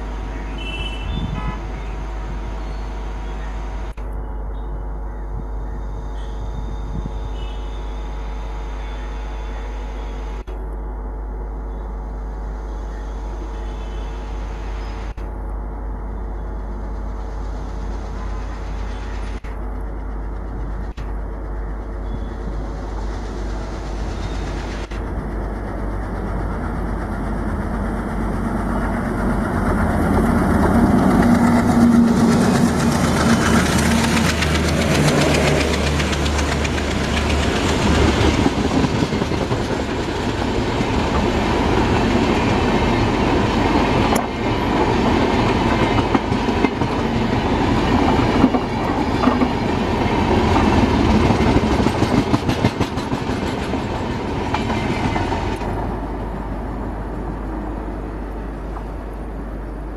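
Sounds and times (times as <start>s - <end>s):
diesel locomotive engine hum: 0.0s - 59.9s
train coaches rolling past: 16.5s - 59.9s.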